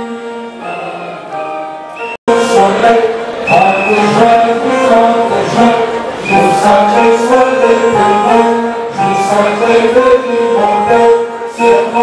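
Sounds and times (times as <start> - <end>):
crowd singing in unison: 0.0 - 12.0.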